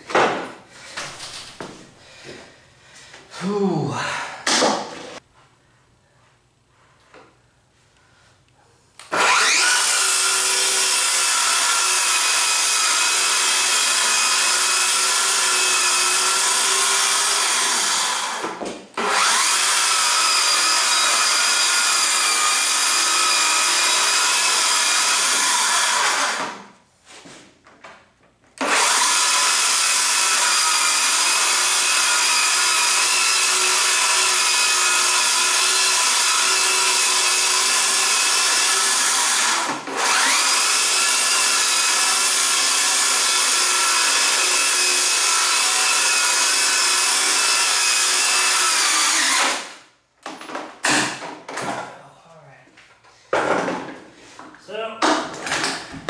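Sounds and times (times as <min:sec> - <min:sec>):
circular saw cutting plywood: 0:09.1 - 0:26.6, 0:28.6 - 0:49.7.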